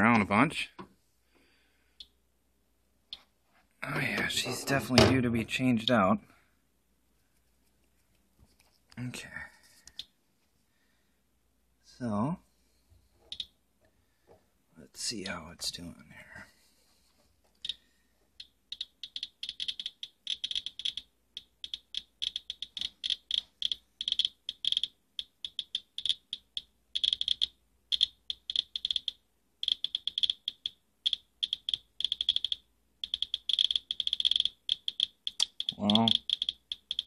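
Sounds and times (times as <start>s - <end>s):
geiger counter clicking: 13.3s - 13.5s, 17.6s - 17.8s, 18.4s - 37.0s.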